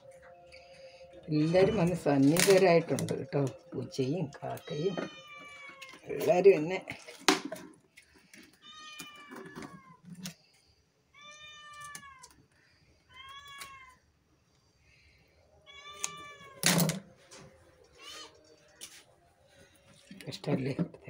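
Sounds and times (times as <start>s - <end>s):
cat meowing: 4.5s - 6.1s, 8.6s - 10.2s, 11.1s - 12.4s, 13.1s - 14.0s, 15.6s - 16.6s, 17.9s - 18.5s.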